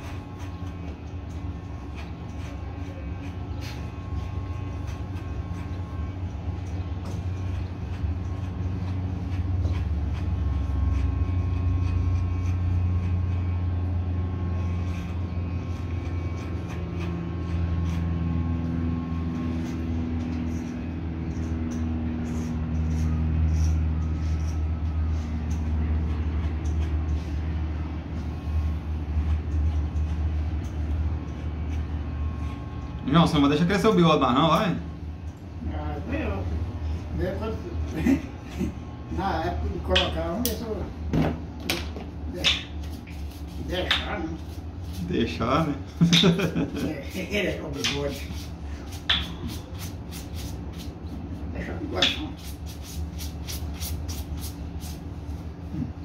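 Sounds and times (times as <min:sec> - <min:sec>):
electric hair clippers buzzing: 0:00.0 - 0:40.7.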